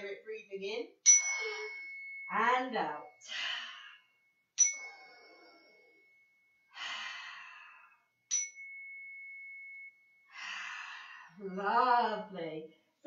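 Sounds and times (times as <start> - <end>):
handheld chime ringing: 1.0 - 7.3, 8.3 - 10.7
deep breath: 3.2 - 8.2, 10.3 - 11.4.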